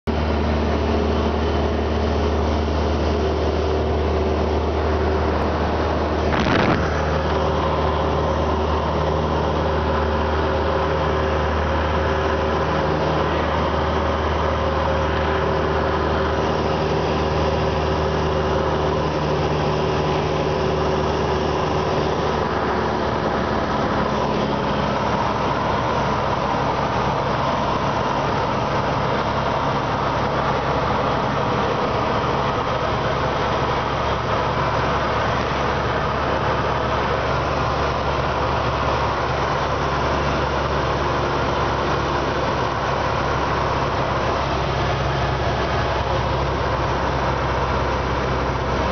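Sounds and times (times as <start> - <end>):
airplane engine drone: 0.1 - 48.9
rushing air: 2.5 - 40.4.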